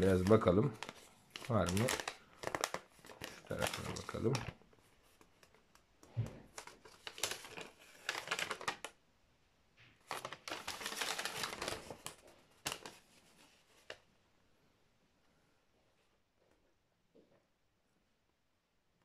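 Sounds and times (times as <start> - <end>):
paper rustling and crackling: 0.0 - 9.0, 10.0 - 14.1.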